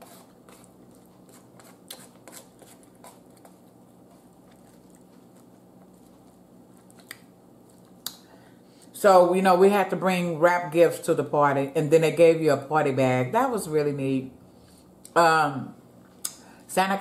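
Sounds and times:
fork scraping a plate: 0:00.0 - 0:03.6
soft chewing: 0:00.0 - 0:08.9.

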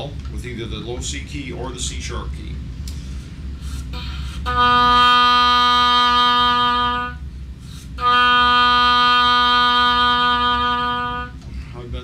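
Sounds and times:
oboe playing long low note: 0:03.7 - 0:11.5.

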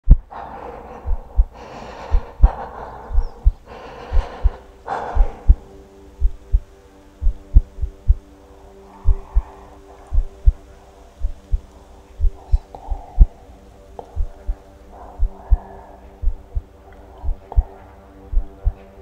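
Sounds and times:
heartbeat low thumps: 0:00.0 - 0:00.3, 0:01.1 - 0:05.6, 0:06.2 - 0:08.2, 0:09.0 - 0:09.5, 0:10.1 - 0:10.6, 0:11.2 - 0:13.3, 0:14.2 - 0:14.6, 0:16.2 - 0:16.6, 0:17.2 - 0:17.7, 0:18.3 - 0:18.8
low held drone: 0:00.0 - 0:19.0
heavy breathing: 0:00.1 - 0:19.0.

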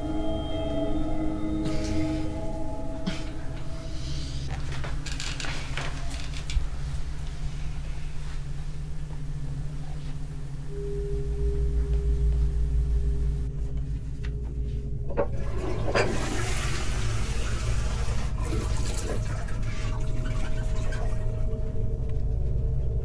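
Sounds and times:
low steady hum: 0:00.0 - 0:23.0
toilet flushing: 0:15.2 - 0:21.7.

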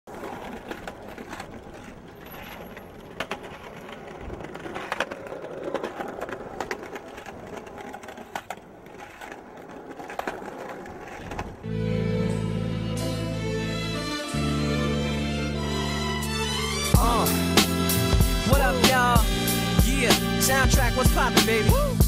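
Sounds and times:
skateboard clacks: 0:00.1 - 0:11.7
skateboard wheels rolling on concrete: 0:00.1 - 0:22.0.

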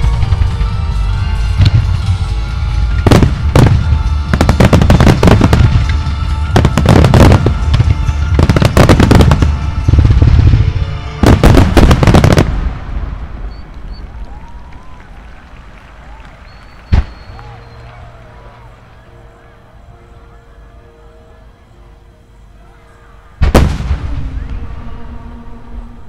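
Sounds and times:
music: 0:00.0 - 0:13.5, 0:15.6 - 0:26.0
fireworks sharp bangs: 0:03.0 - 0:14.0, 0:23.4 - 0:24.7.

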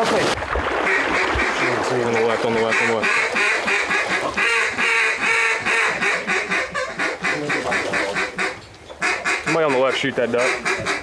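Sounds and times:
duck call quacks: 0:02.6 - 0:11.0.

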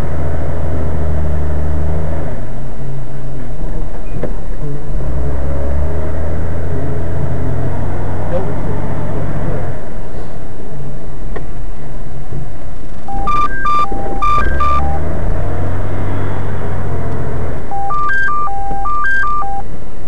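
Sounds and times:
car engine rumble: 0:00.0 - 0:20.0
road noise: 0:00.0 - 0:20.0
electronic beeping tune: 0:13.1 - 0:15.1, 0:17.7 - 0:19.7.

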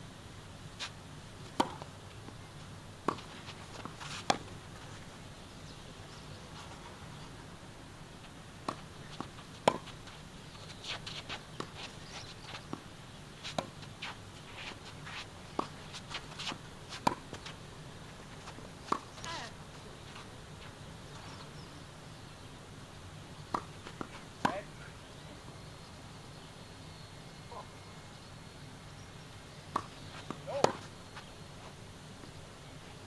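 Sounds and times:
rackets hitting tennis ball: 0:01.5 - 0:02.0, 0:03.1 - 0:04.6, 0:08.6 - 0:17.6, 0:29.7 - 0:30.9
tennis ball bouncing: 0:01.5 - 0:02.0, 0:03.0 - 0:04.6, 0:08.6 - 0:17.6, 0:18.4 - 0:19.5, 0:23.4 - 0:24.7, 0:29.7 - 0:30.9
footsteps on court: 0:03.1 - 0:05.1, 0:08.7 - 0:12.8, 0:13.4 - 0:17.6.

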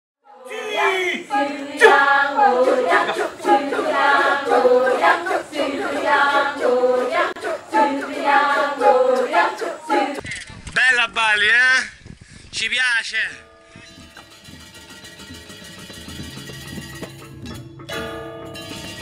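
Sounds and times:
women chanting a cappella: 0:00.2 - 0:10.2.

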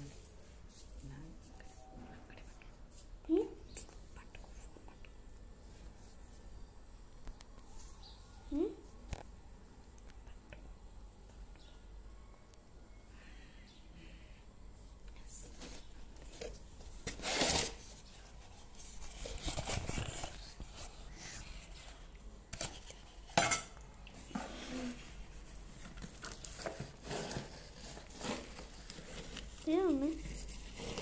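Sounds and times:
cardboard rustling and scraping: 0:15.5 - 0:23.3, 0:24.3 - 0:31.0.

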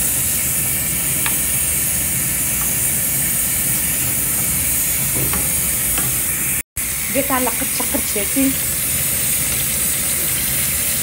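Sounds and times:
food hissing on stove: 0:00.0 - 0:11.0.

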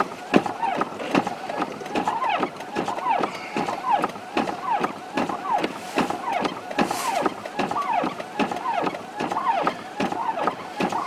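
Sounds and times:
electronic siren wailing: 0:02.0 - 0:05.6, 0:06.2 - 0:11.0.

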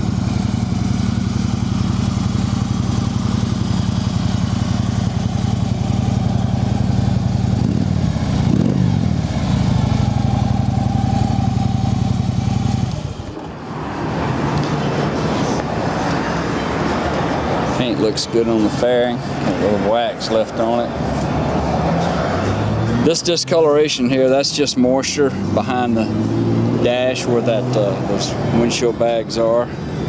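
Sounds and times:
motorcycle engine idling: 0:00.0 - 0:13.4.

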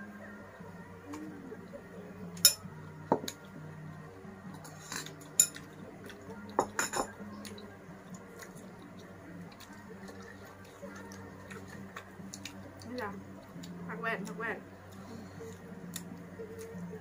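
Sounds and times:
spoon clinking against bowl: 0:02.4 - 0:03.3, 0:05.3 - 0:05.7, 0:06.6 - 0:07.2
dishes knocking on tray: 0:06.6 - 0:07.1.

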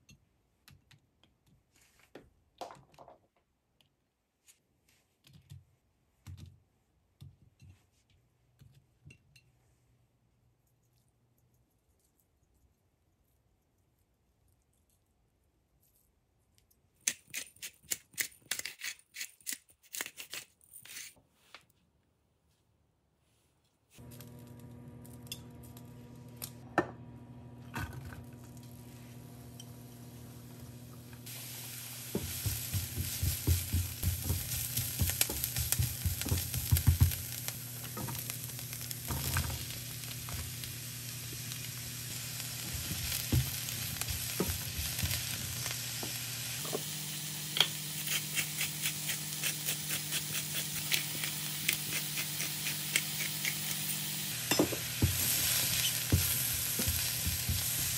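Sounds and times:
food sizzling in a pan: 0:28.0 - 0:57.9
utensil stirring and scraping: 0:47.6 - 0:57.9.

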